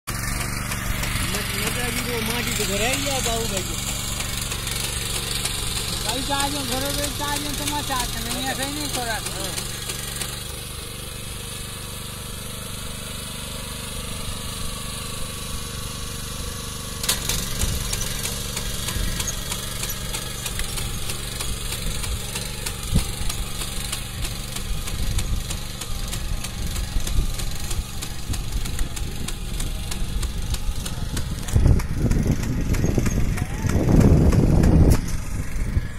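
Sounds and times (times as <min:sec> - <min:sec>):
rapid mechanical ticking: 0:00.1 - 0:11.4, 0:17.0 - 0:35.8
small engine running: 0:00.1 - 0:35.9.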